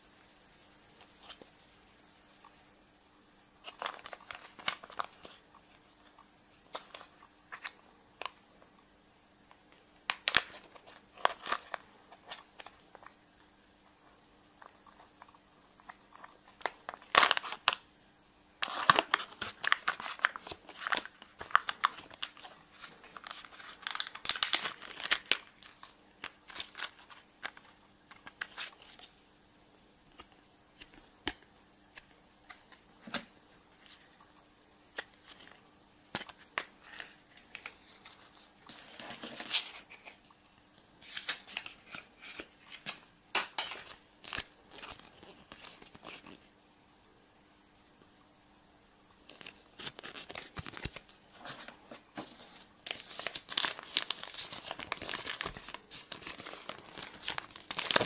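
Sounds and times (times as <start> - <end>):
wrapper crinkling and tearing: 3.6 - 8.3, 10.1 - 13.2, 16.1 - 17.8, 18.6 - 29.1, 41.0 - 46.4, 49.3 - 51.1, 52.4 - 58.0.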